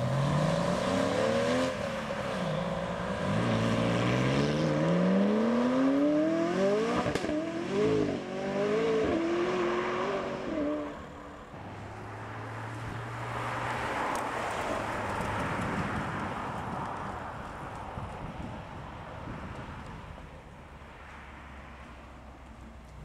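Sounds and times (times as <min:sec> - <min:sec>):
sports cars accelerating hard: 0:00.0 - 0:15.8.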